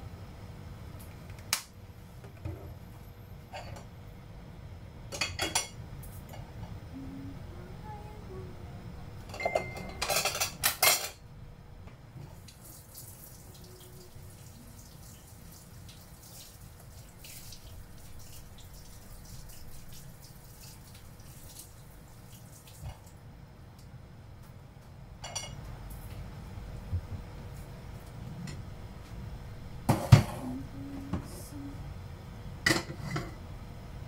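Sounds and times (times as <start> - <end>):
faint steady hum: 0.0 - 34.0
dishes clattering: 5.2 - 5.8, 9.3 - 11.2, 25.2 - 25.6, 29.9 - 30.5, 32.7 - 33.4.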